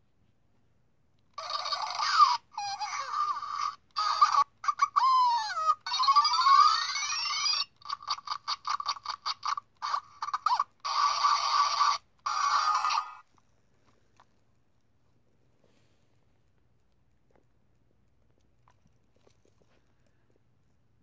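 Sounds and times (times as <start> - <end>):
toy speaker electronic sound effects: 1.4 - 13.2.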